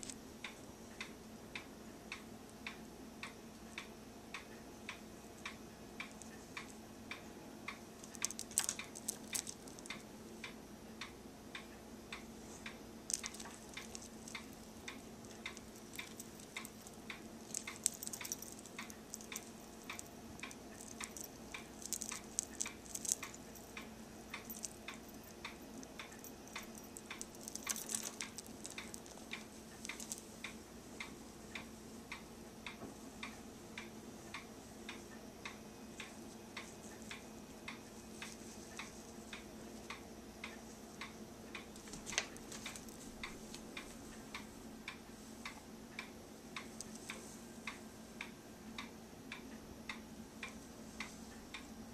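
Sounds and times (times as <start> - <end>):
clock ticking: 0.0 - 41.8
faint steady hum: 0.0 - 51.9
beads clicking and rattling: 5.4 - 6.8, 7.7 - 10.1, 12.5 - 30.6, 41.6 - 43.6, 46.6 - 47.2.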